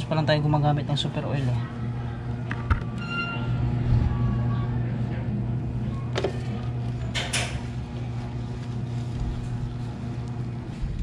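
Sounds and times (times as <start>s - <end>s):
low hum: 1.6s - 11.0s.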